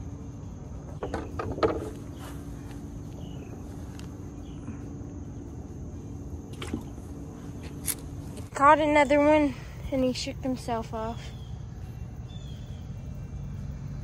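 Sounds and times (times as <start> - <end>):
high insect drone: 0.0 - 14.0
knocks and rustles: 0.9 - 2.2.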